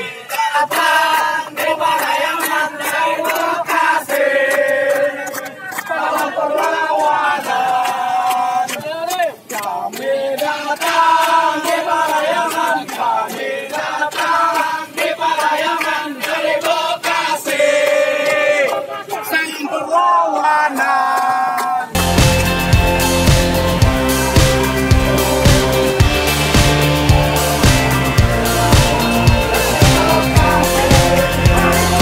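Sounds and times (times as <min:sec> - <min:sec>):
hand claps: 0:00.0 - 0:18.8, 0:20.7 - 0:32.0
crowd singing together: 0:00.0 - 0:32.0.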